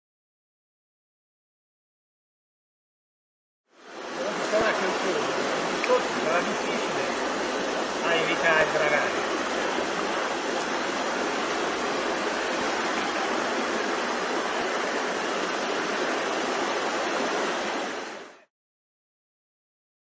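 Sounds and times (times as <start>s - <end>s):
water running over stones: 3.8s - 18.3s.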